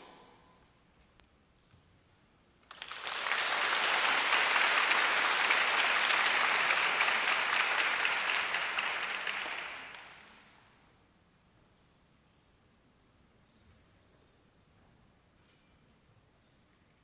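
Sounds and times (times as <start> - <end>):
audience applauding: 2.7 - 10.5.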